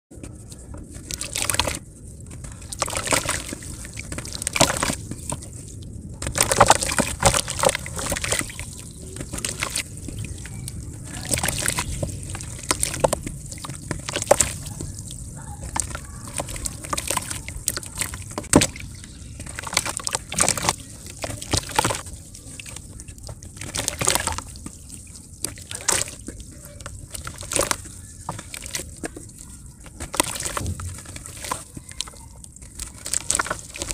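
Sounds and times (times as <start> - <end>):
water sloshing and splashing: 0.2 - 33.9.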